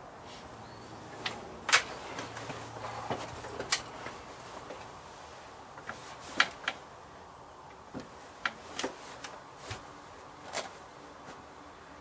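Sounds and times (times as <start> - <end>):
sharp handling clicks and knocks: 1.1 - 4.9, 5.7 - 6.8, 7.7 - 11.4.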